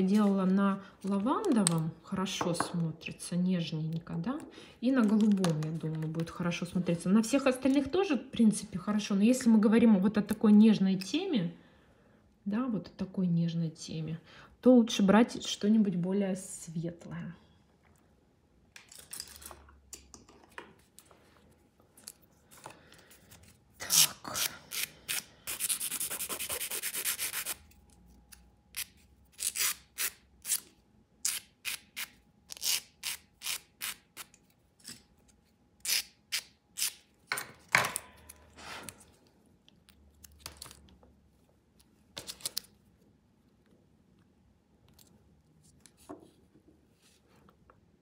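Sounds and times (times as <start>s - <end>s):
nail file scraping: 23.8s - 27.8s, 28.8s - 35.0s.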